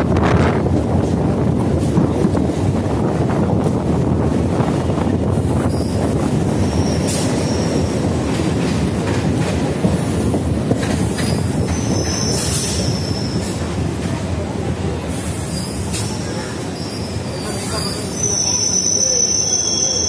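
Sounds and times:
train wheels rumbling on rail: 0:00.0 - 0:20.0
high-pitched wheel squeals: 0:16.7 - 0:20.0.

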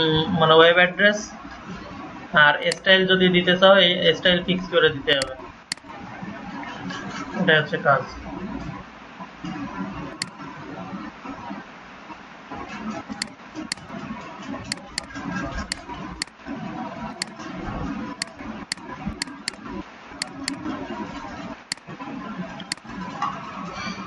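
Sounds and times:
computer mouse clicking: 0:10.1 - 0:10.3, 0:14.7 - 0:16.3, 0:18.2 - 0:19.6, 0:20.2 - 0:20.6, 0:22.6 - 0:22.9.

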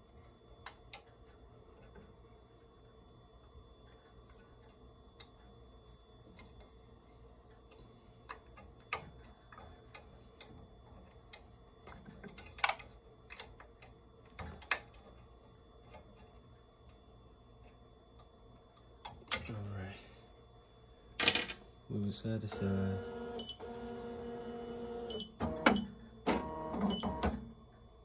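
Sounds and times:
small clicks on metal parts: 0:07.6 - 0:15.2.

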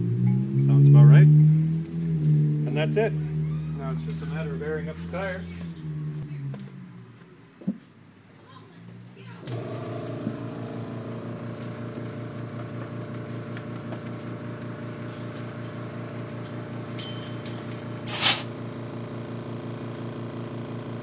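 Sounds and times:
air compressor pulsing hum: 0:09.5 - 0:17.1, 0:17.7 - 0:21.0
hiss of air from hose: 0:18.1 - 0:18.5.

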